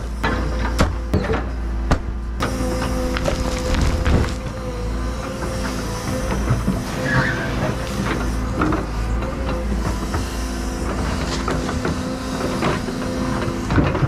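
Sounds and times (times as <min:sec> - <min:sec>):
excavator diesel engine running: 0:00.0 - 0:14.0
hydraulic whine: 0:00.0 - 0:14.0
bucket scraping and knocking in dirt: 0:03.1 - 0:04.4.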